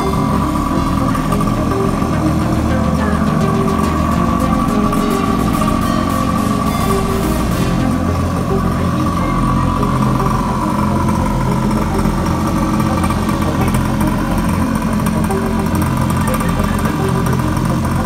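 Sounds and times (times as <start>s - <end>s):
small two-stroke engine idling: 0.0s - 18.0s.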